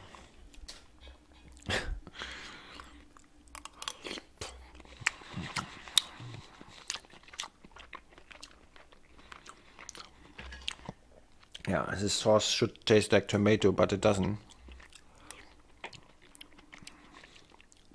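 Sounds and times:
person chewing food: 0.0 - 11.7, 14.4 - 17.9.

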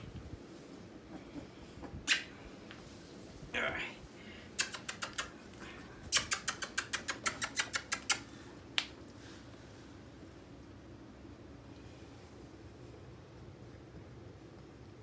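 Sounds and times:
short sharp clicks: 6.1 - 8.2.

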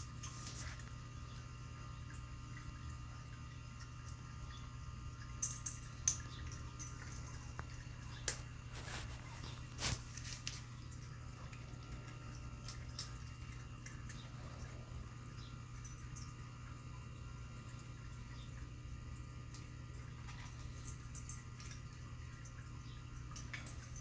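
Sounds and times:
steady low hum: 0.0 - 24.0
cat chewing and licking: 5.8 - 15.1.

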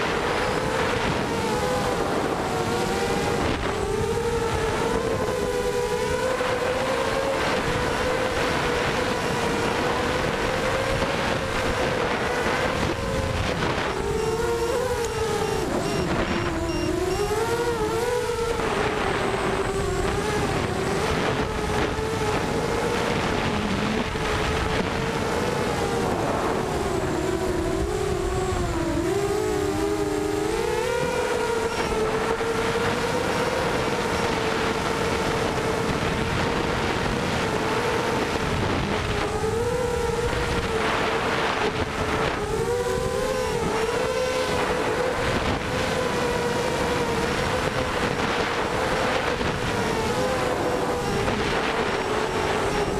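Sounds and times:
quadcopter motors whining: 0.0 - 52.9
wind on microphone: 0.0 - 52.9.

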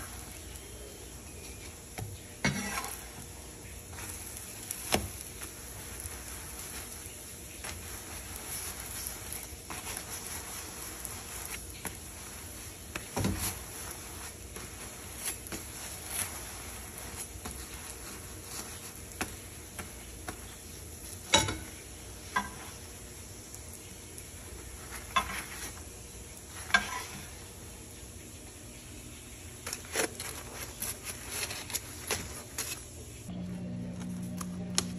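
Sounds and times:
bread sizzling: 0.0 - 34.9
metal spatula scraping frying pan: 2.4 - 3.3, 26.6 - 27.5.

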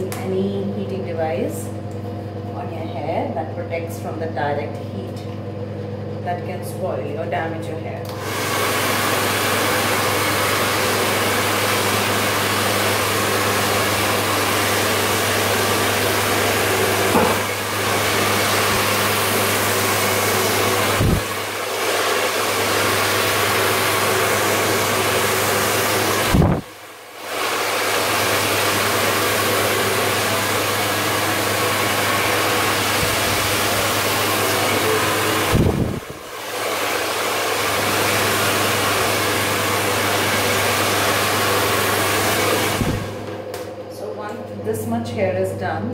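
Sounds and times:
hair dryer blowing: 8.0 - 44.7.

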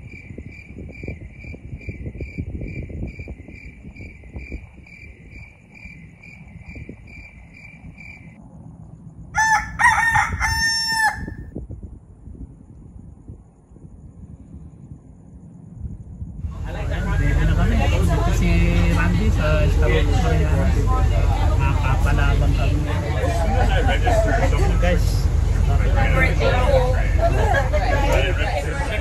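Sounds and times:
cricket chirping: 0.0 - 18.5
low rumble: 0.0 - 29.0
rooster crowing: 9.4 - 11.5.

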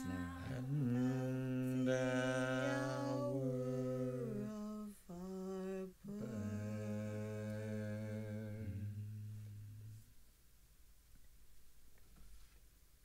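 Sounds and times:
voices humming in harmony: 0.0 - 10.0.

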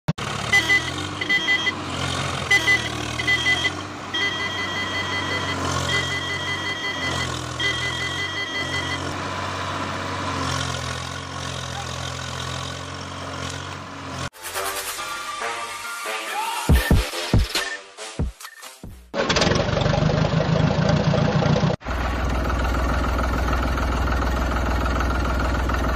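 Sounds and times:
vehicle engine running: 0.2 - 14.3, 18.8 - 25.9
electronic beeping: 0.7 - 1.8, 2.5 - 9.1.

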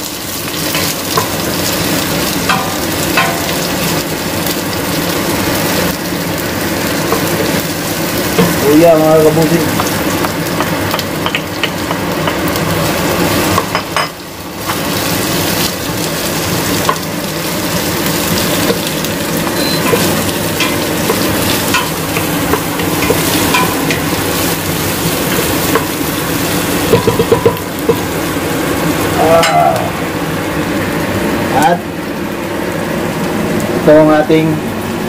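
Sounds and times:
food sizzling in hot oil: 0.0 - 35.0
utensil clicking against pan: 9.8 - 12.6, 18.6 - 24.3.

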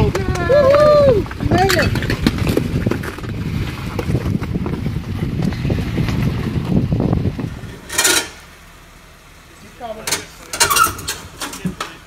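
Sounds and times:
wind buffeting microphone: 0.0 - 7.9
vehicle rumbling over rocks: 0.0 - 12.0.

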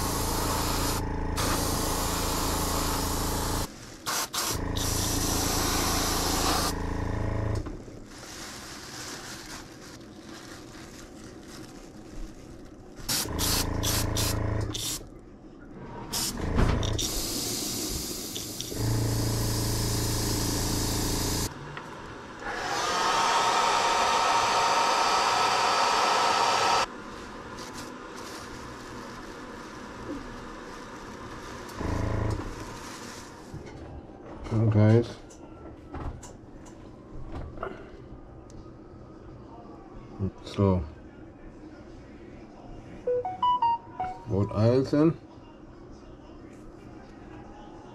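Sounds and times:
air compressor humming: 0.0 - 7.8, 13.1 - 15.0, 16.1 - 21.6, 22.4 - 26.9, 31.7 - 32.7.

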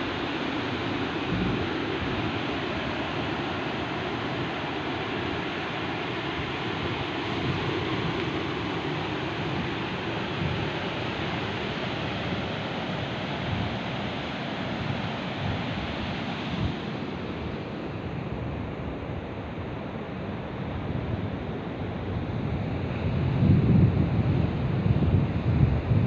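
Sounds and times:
surf washing on sand: 0.0 - 26.0
wind buffeting microphone: 1.0 - 4.6, 6.3 - 14.1, 20.7 - 26.0.

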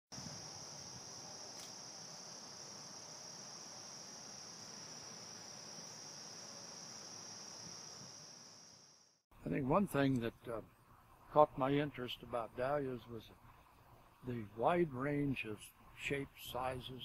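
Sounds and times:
crickets chirping: 0.2 - 9.2.

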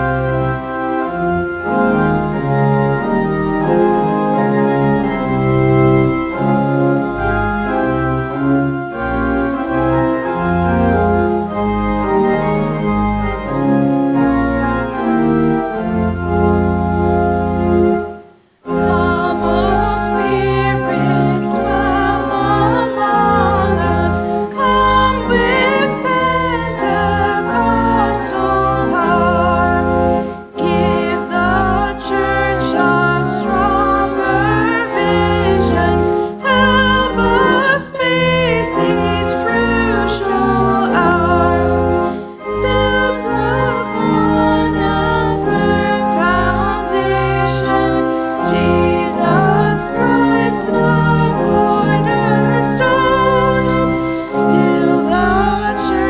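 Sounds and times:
organ playing slow chords: 0.0 - 56.0
person singing with vibrato: 18.3 - 56.0.

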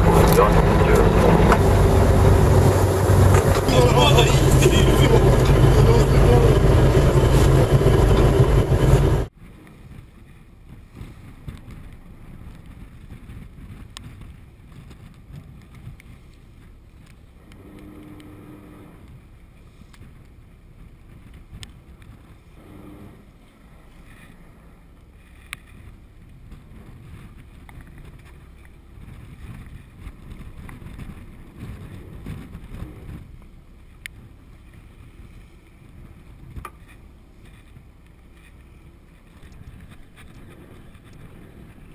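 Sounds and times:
wind rushing: 0.0 - 9.3
boat engine: 0.0 - 15.0, 16.1 - 41.9
sea washing against hull: 0.0 - 17.4, 19.1 - 41.9.

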